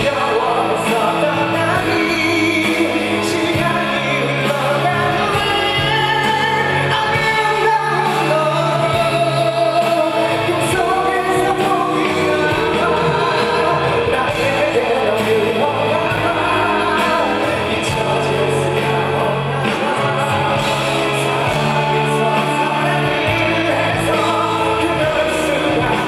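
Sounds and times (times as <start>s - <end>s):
instrumental accompaniment: 0.0s - 26.0s
man singing a ballad: 0.0s - 26.0s.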